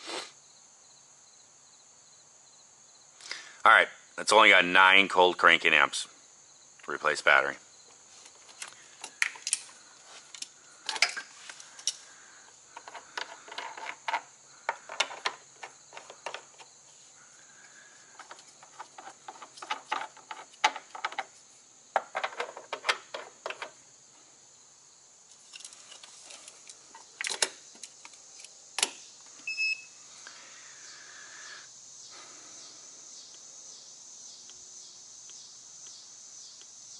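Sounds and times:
clamps and cables clicking and rattling: 10.3s - 12.0s, 12.8s - 16.7s.

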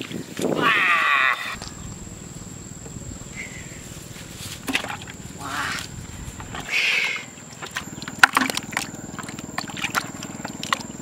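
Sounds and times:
water splashing in plastic tub: 4.4s - 6.7s, 7.5s - 11.0s.

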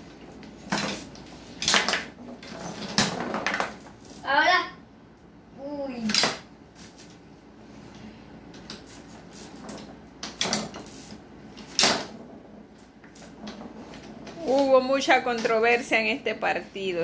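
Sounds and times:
foosball figures striking ball: 0.0s - 3.9s.

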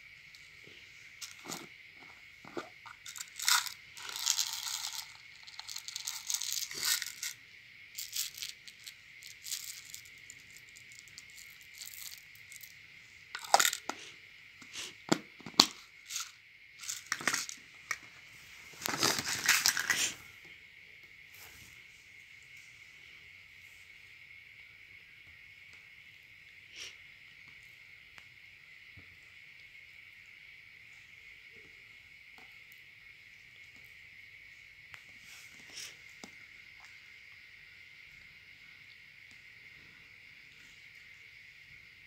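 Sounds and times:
plastic pieces rattling: 1.2s - 1.7s, 2.5s - 7.4s, 8.0s - 12.7s, 13.4s - 13.9s, 15.5s - 17.6s, 18.8s - 20.2s.

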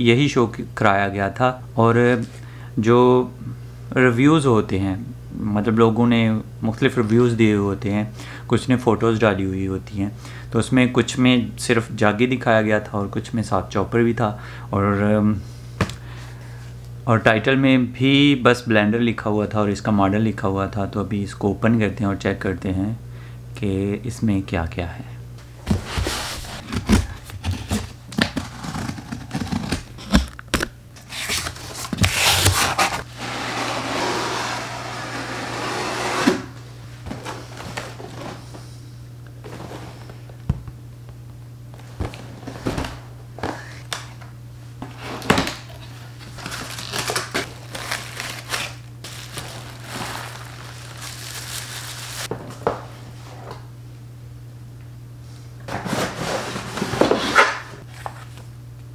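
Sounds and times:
cardboard and plastic rustling: 25.6s - 33.1s, 37.0s - 38.6s, 41.7s - 43.7s, 44.8s - 52.6s.

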